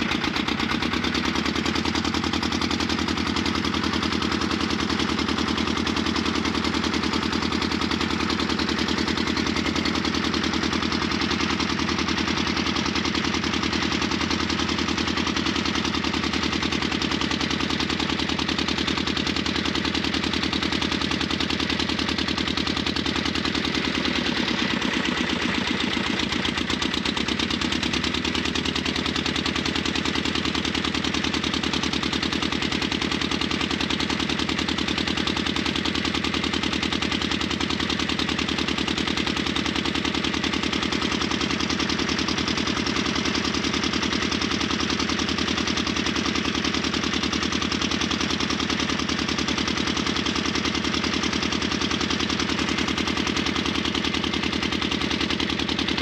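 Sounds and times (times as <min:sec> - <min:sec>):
boat engine knocking: 0:00.0 - 0:56.0.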